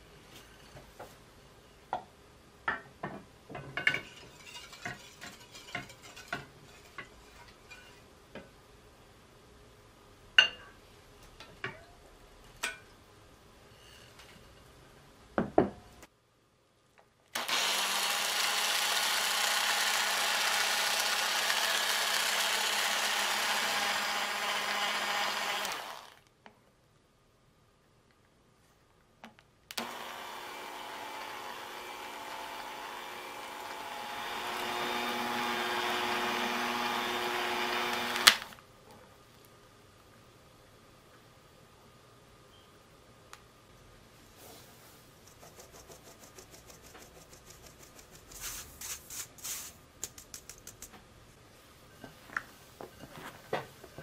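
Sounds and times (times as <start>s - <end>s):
electric hand mixer running: 17.4s - 26.2s, 29.8s - 38.6s.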